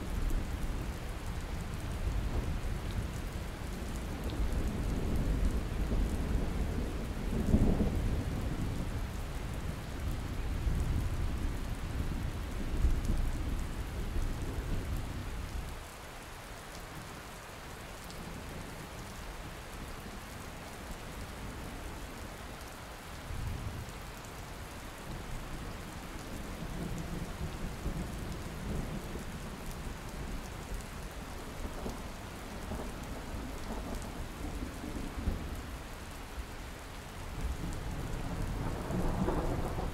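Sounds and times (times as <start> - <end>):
steady rain falling: 0.0 - 39.9
rolling thunder: 37.5 - 39.9.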